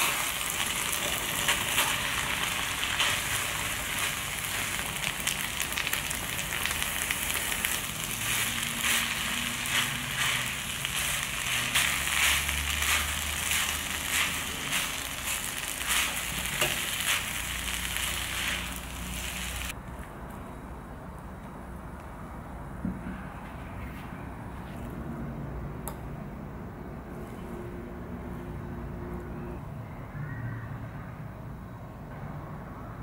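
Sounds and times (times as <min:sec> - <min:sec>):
rice sizzling in a frying pan: 0:00.0 - 0:19.8
spatula scraping pan: 0:08.1 - 0:19.7.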